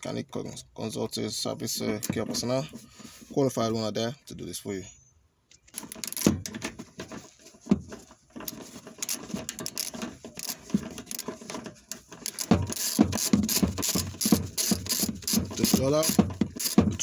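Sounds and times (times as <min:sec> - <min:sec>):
socket ratchet clicking: 0:12.3 - 0:16.9.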